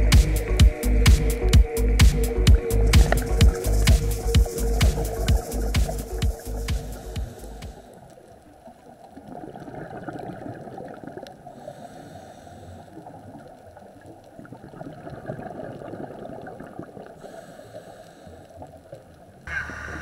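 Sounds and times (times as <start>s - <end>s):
fine underwater crackle: 3.0s - 20.0s
muffled underwater noise: 16.6s - 20.0s.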